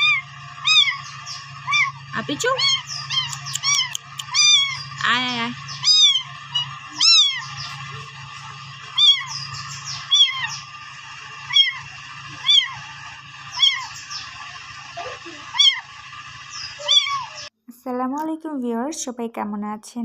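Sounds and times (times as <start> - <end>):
kitten mewing: 0.0 - 1.0, 1.6 - 5.0, 5.8 - 8.3, 9.0 - 9.4, 10.0 - 10.6, 11.5 - 11.8, 12.4 - 12.8, 13.6 - 14.0, 15.0 - 15.9, 16.7 - 17.5.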